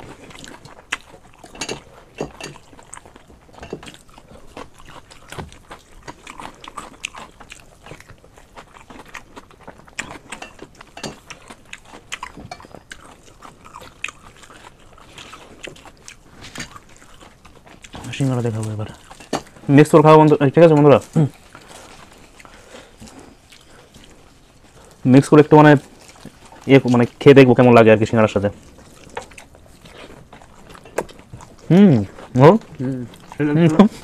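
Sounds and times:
person chewing: 0:00.0 - 0:34.0.

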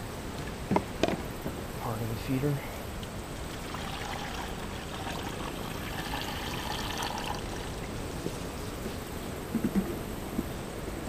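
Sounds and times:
syrup pouring and splashing: 0:03.4 - 0:08.0.

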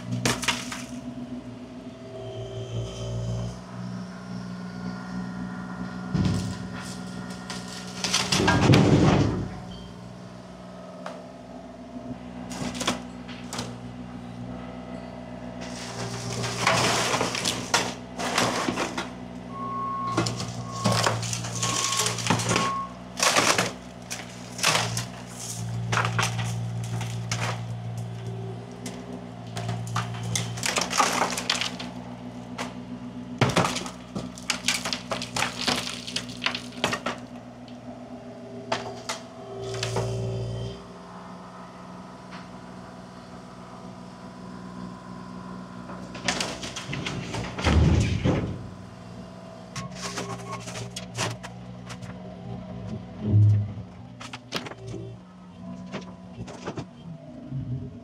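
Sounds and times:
wood cracking and crashing: 0:00.0 - 0:01.0, 0:06.1 - 0:09.7, 0:12.5 - 0:13.8, 0:15.6 - 0:19.3, 0:20.1 - 0:37.8, 0:46.0 - 0:48.8, 0:49.8 - 0:52.1, 0:54.2 - 0:54.9
machine engine running: 0:00.0 - 0:58.0.

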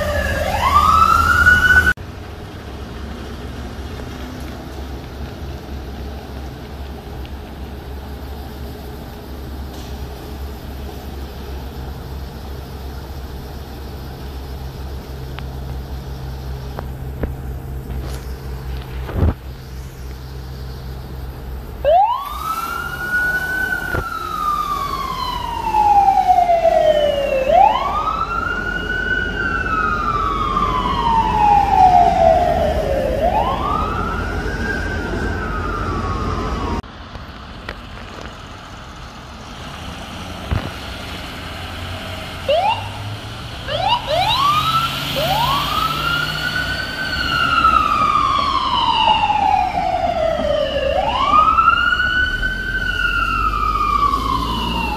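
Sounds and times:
siren wailing: 0:00.0 - 0:02.0, 0:21.8 - 0:36.8, 0:42.5 - 0:43.0, 0:43.6 - 0:54.9
ambulance engine idling: 0:00.0 - 0:39.6
traffic noise: 0:00.0 - 0:54.9.

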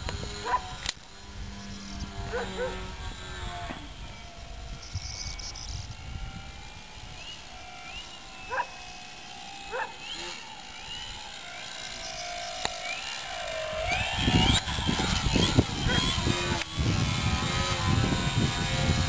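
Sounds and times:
model airplane motor whine: 0:00.0 - 0:19.0
dog barking: 0:02.3 - 0:02.8, 0:09.7 - 0:09.9.

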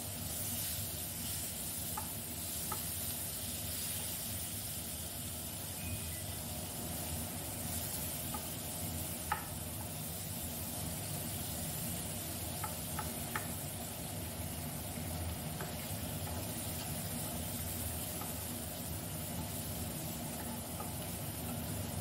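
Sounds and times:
vegetables sizzling in oil: 0:00.0 - 0:22.0
wooden spatula knocking on pan: 0:02.0 - 0:02.9, 0:09.2 - 0:09.6, 0:12.6 - 0:13.6.

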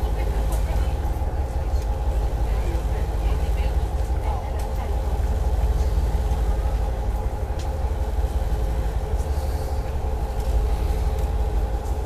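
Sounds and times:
ferry engines droning: 0:00.0 - 0:12.0.

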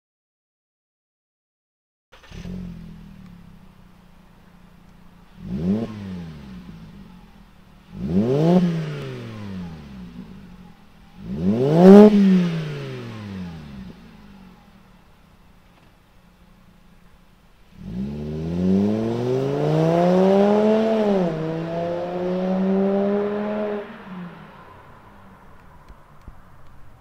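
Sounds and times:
car engine idling and revving: 0:02.2 - 0:27.0.

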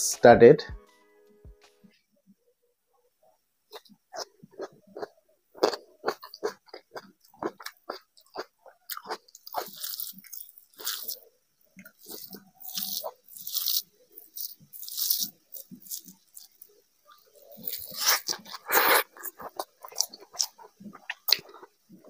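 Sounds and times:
close-miked chewing: 0:03.7 - 0:22.0
fingers mixing rice rustling: 0:08.2 - 0:22.0.

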